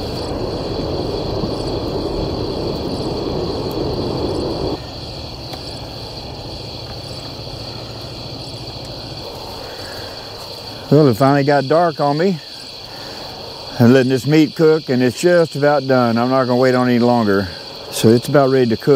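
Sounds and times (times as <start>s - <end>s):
low rushing noise: 0.0s - 10.0s
crickets trilling: 0.0s - 18.9s.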